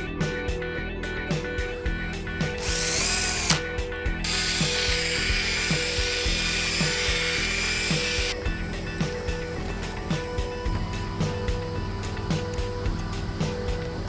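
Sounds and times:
background music with beat: 0.0s - 14.0s
rotary polisher whirring: 2.6s - 3.6s, 4.2s - 8.9s
rising whine: 4.2s - 14.0s.

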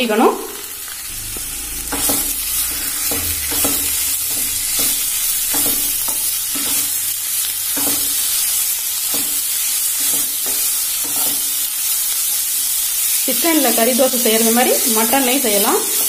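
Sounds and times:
chicken sizzling in hot oil: 0.0s - 16.0s.

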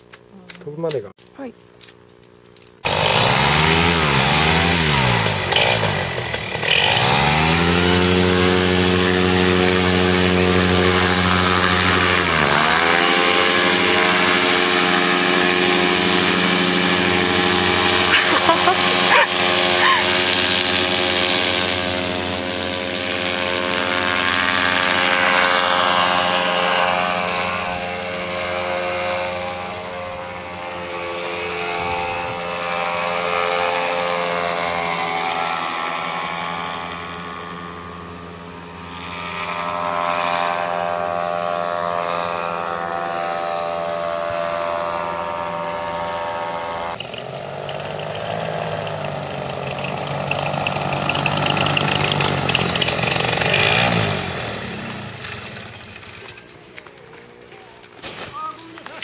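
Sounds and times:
paramotor engine droning: 2.6s - 59.0s.

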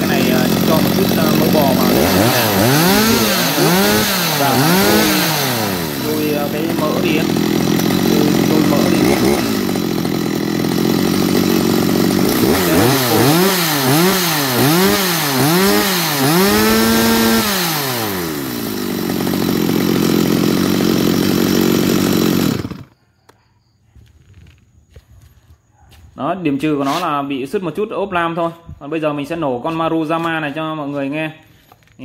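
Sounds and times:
chainsaw revving and idling: 0.0s - 23.0s.

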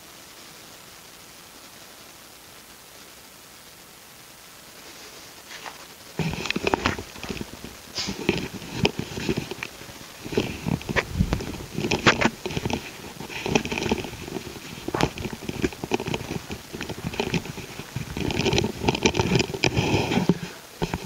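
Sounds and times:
blanket rustling: 4.8s - 21.0s
person shifting on mat: 5.5s - 21.0s.

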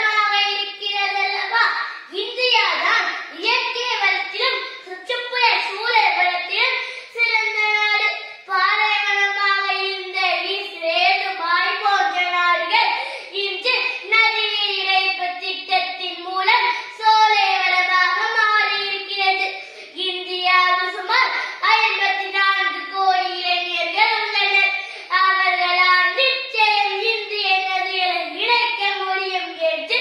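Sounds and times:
boy declaiming a speech: 0.0s - 30.0s.

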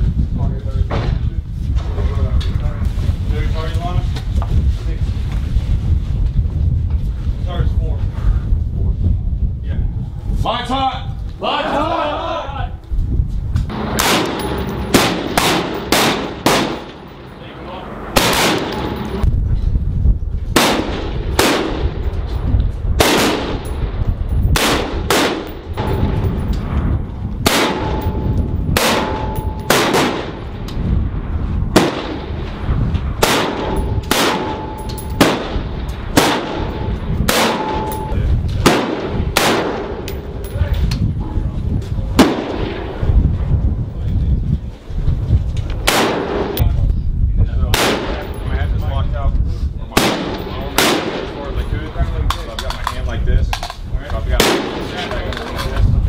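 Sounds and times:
rifle shots with echo: 13.7s - 17.3s, 18.1s - 19.2s, 20.6s - 22.1s, 23.0s - 26.6s, 27.4s - 30.7s, 31.7s - 32.6s, 33.2s - 40.4s, 42.2s - 43.0s, 45.8s - 46.6s, 47.7s - 48.4s, 49.9s - 51.5s, 54.3s - 55.2s.

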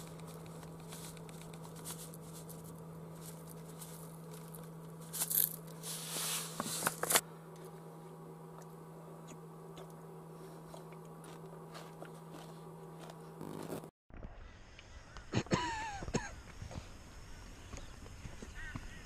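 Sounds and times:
low hum: 0.0s - 18.9s
cereal crunching: 0.1s - 5.8s, 10.7s - 13.8s.

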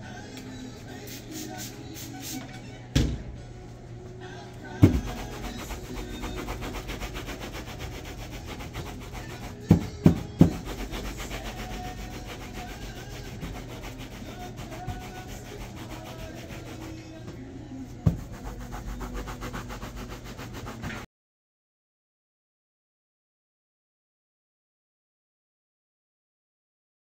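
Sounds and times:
rubbing strokes on leather shoe: 4.8s - 17.1s, 18.1s - 21.0s.

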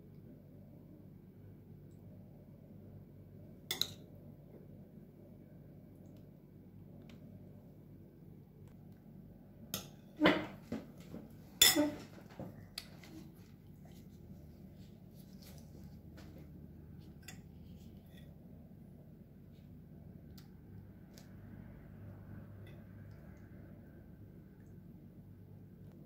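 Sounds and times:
metal spoon clinking on dishes: 11.6s - 12.0s.

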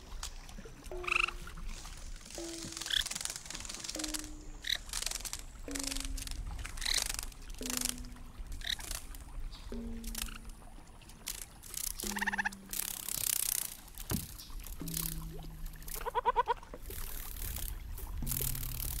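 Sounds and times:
water washing against kayak: 0.0s - 19.0s
held low tones: 0.9s - 19.0s
rapid bird-like chirps: 2.4s - 6.2s, 6.8s - 10.5s.

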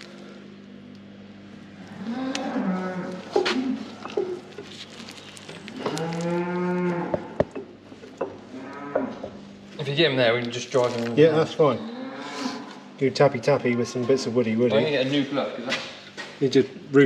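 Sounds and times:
cattle mooing: 1.8s - 4.0s, 5.7s - 7.4s, 8.5s - 9.3s, 11.7s - 12.9s.

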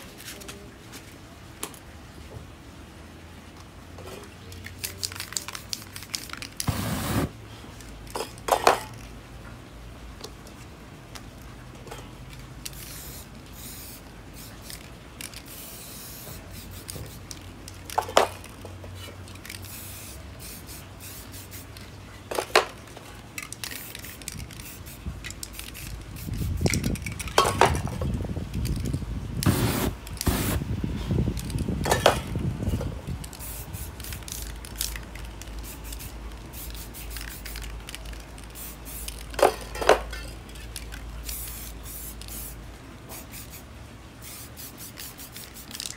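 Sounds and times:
spray paint cans hissing: 4.4s - 7.4s, 11.9s - 30.7s, 31.3s - 45.9s.

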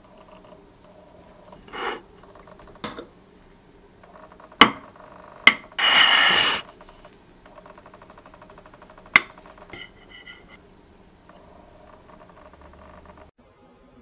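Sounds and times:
cutlery scraping a plate: 1.6s - 2.0s, 5.5s - 7.0s, 9.2s - 10.6s.

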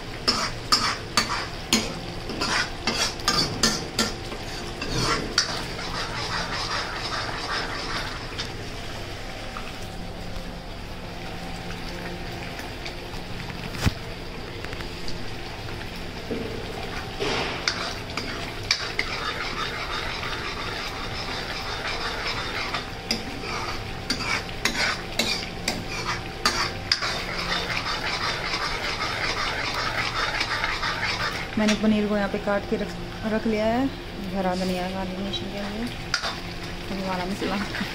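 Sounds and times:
paste sizzling in oil: 0.0s - 9.5s, 15.5s - 37.9s
ladle stirring and scraping: 0.3s - 9.8s, 16.3s - 31.8s.

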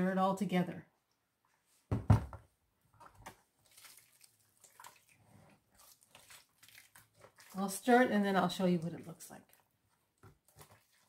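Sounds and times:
plastic spoon stirring mixture: 2.8s - 11.0s.

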